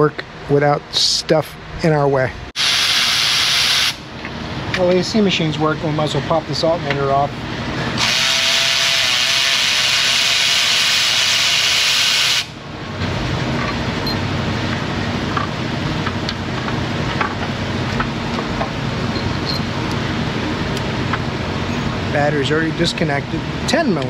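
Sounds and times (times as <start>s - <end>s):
machine humming: 1.5s - 24.0s
gas venting hiss: 8.0s - 12.5s.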